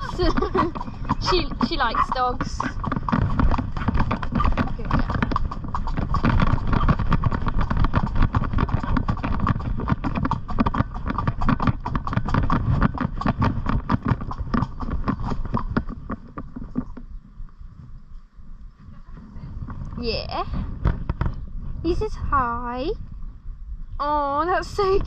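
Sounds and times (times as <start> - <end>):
hooves clip-clopping: 0.0 - 20.0, 20.8 - 21.4.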